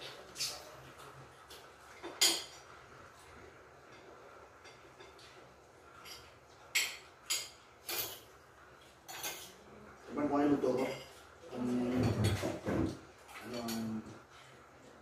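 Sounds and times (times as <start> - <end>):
cutlery clinking on plates: 1.4 - 2.7, 3.8 - 9.7, 10.7 - 14.2.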